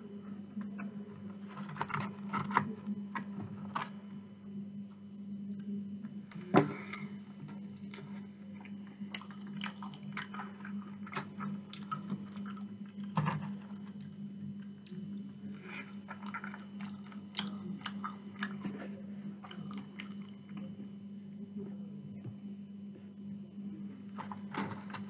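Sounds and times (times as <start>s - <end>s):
steady low hum: 0.0s - 25.0s
open-mouth chewing: 7.0s - 18.7s.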